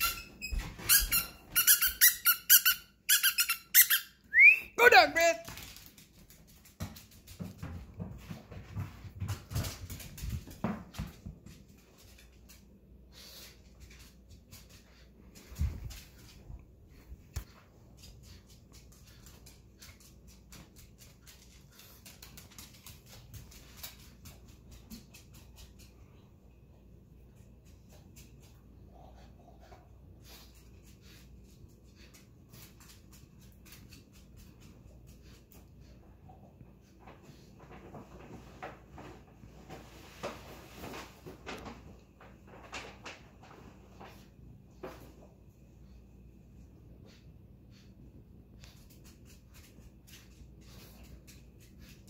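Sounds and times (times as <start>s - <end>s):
dog knocking and scuffing: 5.5s - 12.3s.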